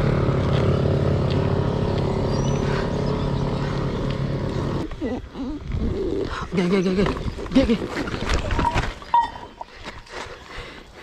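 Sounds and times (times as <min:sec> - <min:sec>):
motorcycle engine running: 0:00.0 - 0:05.2.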